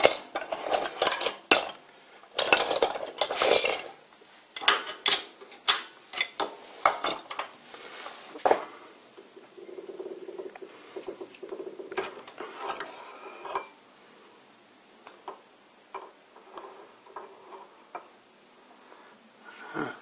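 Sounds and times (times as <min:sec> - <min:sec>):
metal tools clinking and rattling: 0:00.0 - 0:04.0, 0:04.6 - 0:07.4.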